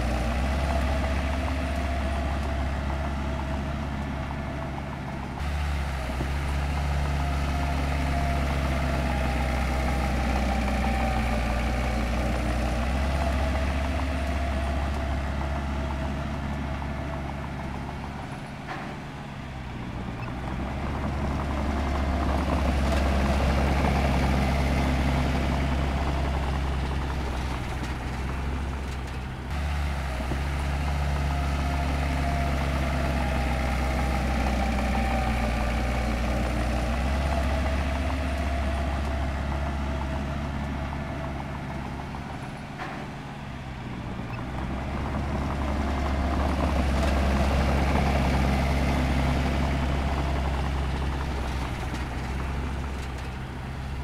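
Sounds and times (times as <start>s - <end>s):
heavy diesel engine running: 0.0s - 54.0s.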